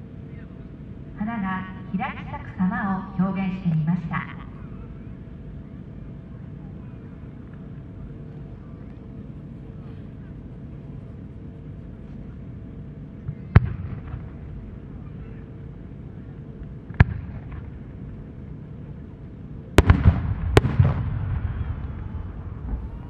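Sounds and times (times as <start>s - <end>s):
firework bangs: 19.8s - 23.0s
rolling echoes: 19.8s - 23.0s.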